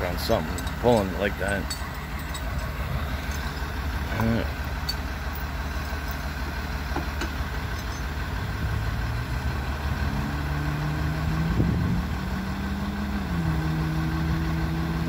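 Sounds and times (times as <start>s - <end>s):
winch pulling: 0.0s - 8.2s
truck engine running: 0.0s - 15.0s.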